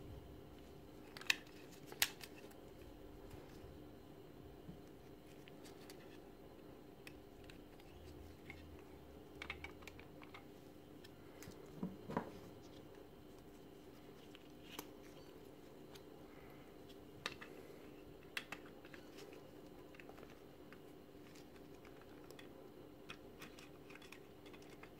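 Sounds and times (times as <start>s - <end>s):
low steady hum: 0.0s - 24.9s.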